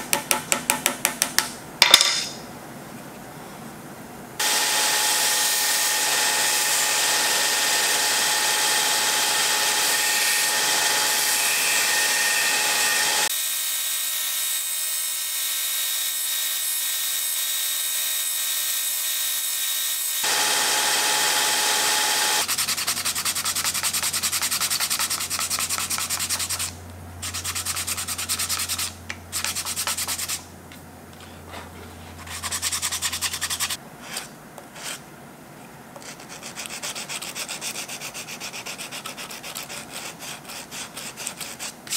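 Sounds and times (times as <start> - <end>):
belt sander grinding wood: 4.4 - 13.3, 20.2 - 22.5
hand sanding rubbing strokes: 21.2 - 30.4, 31.5 - 35.0, 36.0 - 41.9.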